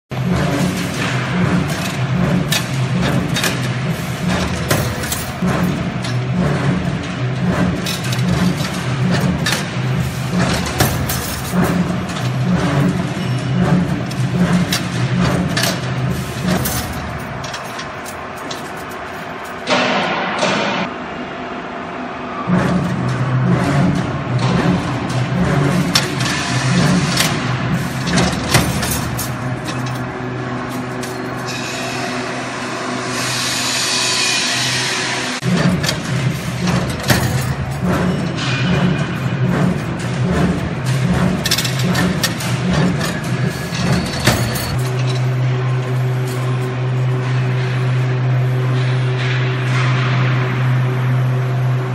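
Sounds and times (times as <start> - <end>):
machine motor hum: 0.1 - 51.9
steel bar clicking and clanking: 22.5 - 31.7, 35.4 - 48.0.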